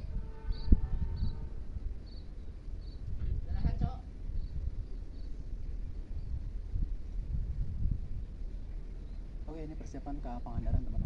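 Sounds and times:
distant diesel locomotive: 0.0 - 11.0
wind rumble on microphone: 0.0 - 11.0.

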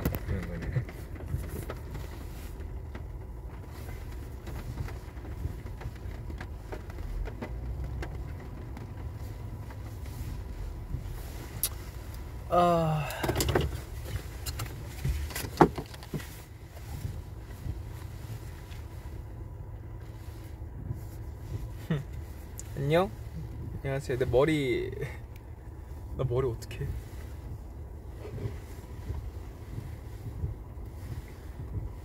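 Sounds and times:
car cabin rumble: 0.0 - 32.0.

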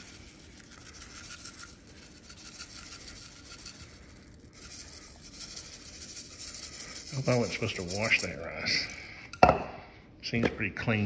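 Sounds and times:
dry rice rustling: 0.0 - 8.6.

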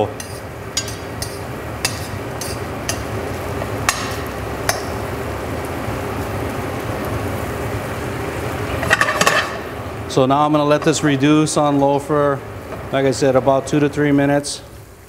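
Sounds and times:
compote simmering in a pan: 0.0 - 15.0
metal spoon clinking on pan: 0.2 - 3.1.

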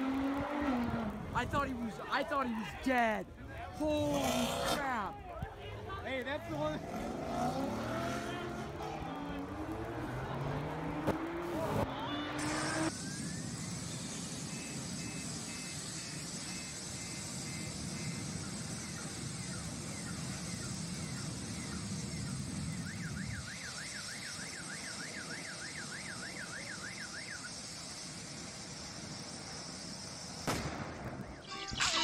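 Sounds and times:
car alarm cycling tones: 11.8 - 27.9.

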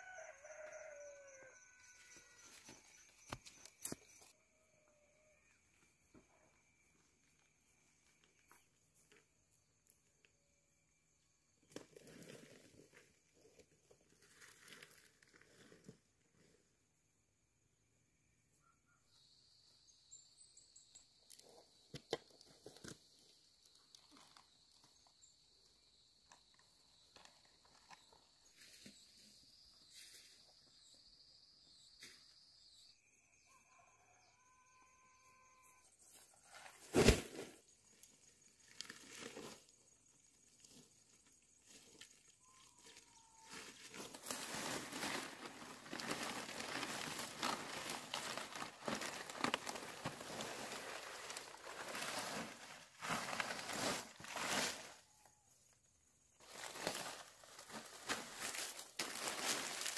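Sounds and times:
palm leaves rustling: 42.9 - 55.0, 56.4 - 59.9.

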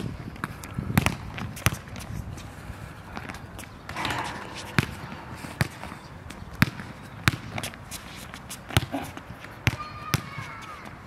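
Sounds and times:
basketball bouncing on hard court: 3.9 - 7.7.

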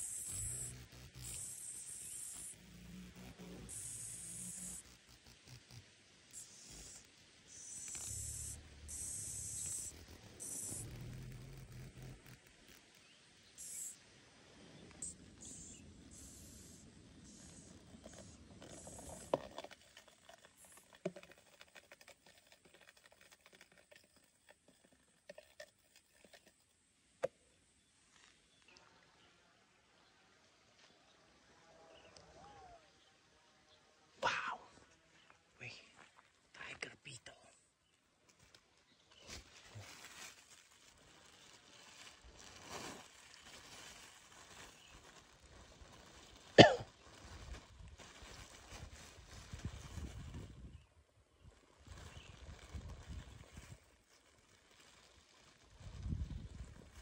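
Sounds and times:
plastic bag rustling: 39.2 - 50.5, 51.4 - 57.0
person coughing: 46.6 - 46.9.

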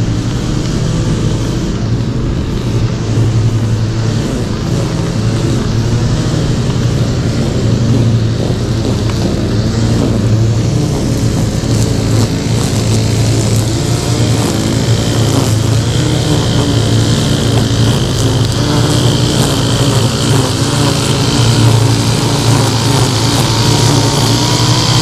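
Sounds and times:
lawn mower engine running: 0.0 - 25.0.

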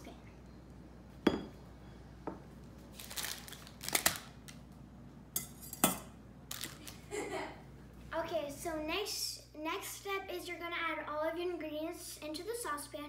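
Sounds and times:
kitchen utensils clinking: 5.4 - 6.9.

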